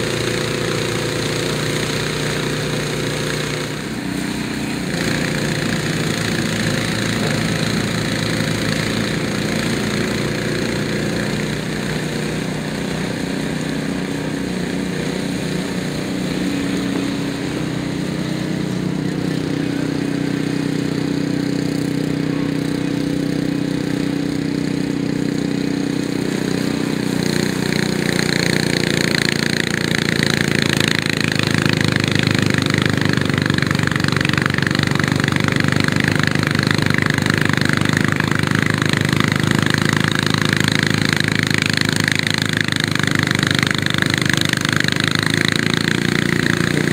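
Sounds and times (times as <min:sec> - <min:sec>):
snowblower engine running: 0:00.0 - 0:46.9.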